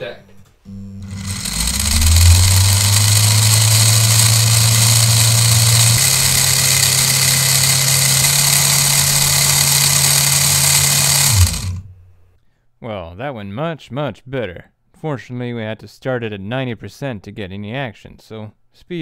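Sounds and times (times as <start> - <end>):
electric motor hum and gear whir: 0.7 - 12.1.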